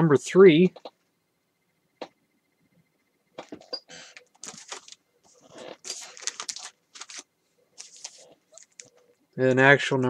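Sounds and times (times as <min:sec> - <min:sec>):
paper pages rustling: 0:04.0 - 0:09.0.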